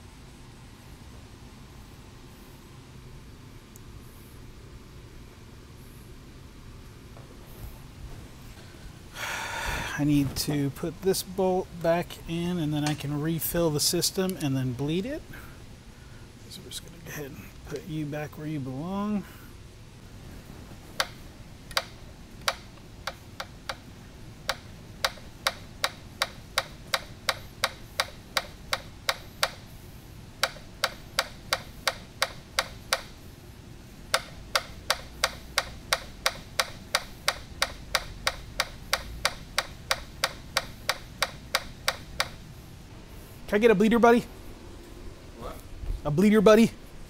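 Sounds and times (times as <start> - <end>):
hand ratchet clicking: 21.0 - 29.7, 30.4 - 33.2, 34.1 - 42.5.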